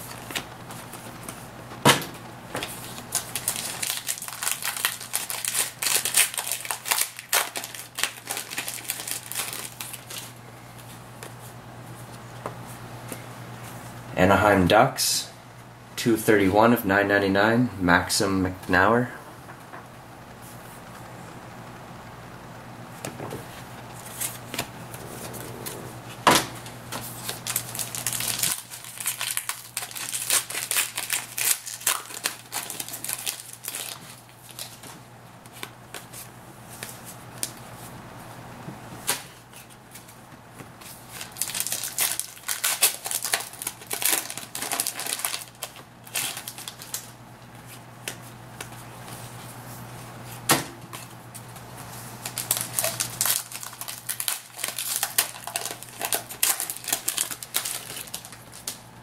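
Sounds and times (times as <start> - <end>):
cards snapping and rustling: 0.1 - 10.3, 26.9 - 36.2, 39.0 - 47.2, 50.5 - 58.8
low hum: 18.5 - 27.6.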